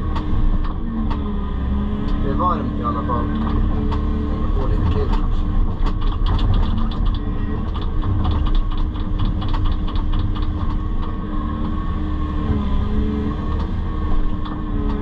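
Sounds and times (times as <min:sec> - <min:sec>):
excavator diesel engine running: 0:00.0 - 0:15.0
clicks and rattles: 0:03.1 - 0:11.8.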